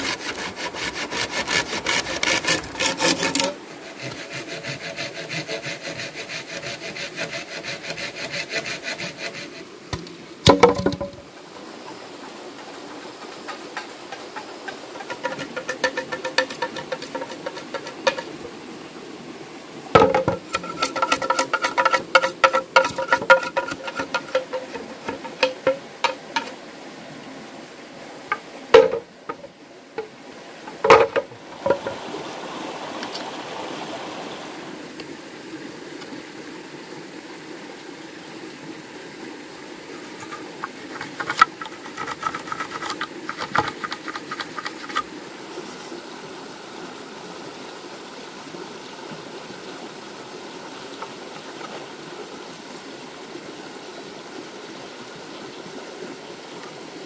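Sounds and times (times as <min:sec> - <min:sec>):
creek running: 0:00.0 - 0:57.0
heavy knocks on bamboo: 0:09.9 - 0:11.2, 0:20.0 - 0:26.5, 0:28.3 - 0:29.5, 0:30.7 - 0:32.0
ringing taps on bamboo: 0:10.0 - 0:11.2, 0:20.0 - 0:26.6, 0:28.3 - 0:30.1.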